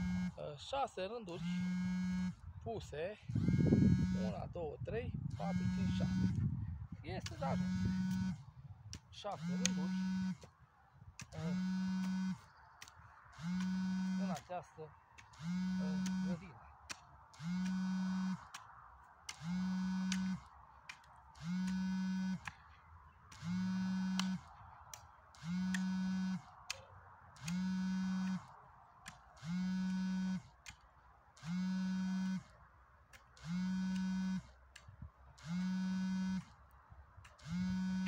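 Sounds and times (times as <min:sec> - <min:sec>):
low electric buzz pulsing: 0:00.0 - 0:00.5, 0:01.3 - 0:02.6, 0:03.3 - 0:10.5, 0:11.2 - 0:12.6, 0:13.3 - 0:16.6, 0:17.3 - 0:18.6, 0:19.3 - 0:20.5, 0:21.4 - 0:22.6, 0:23.3 - 0:24.6, 0:25.3 - 0:26.6, 0:27.4 - 0:28.6, 0:29.4 - 0:30.6, 0:31.4 - 0:32.5, 0:33.4 - 0:34.6, 0:35.4 - 0:36.6, 0:37.4 - 0:38.0
faint sharp clicks: 0:12.8 - 0:13.0, 0:26.5 - 0:27.6, 0:34.7 - 0:34.9.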